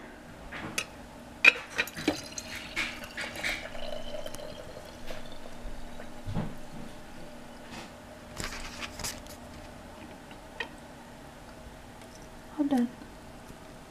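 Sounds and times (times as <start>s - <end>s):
tea maker clinking on mug: 1.5s - 6.2s
tea trickling into mug: 1.9s - 7.4s.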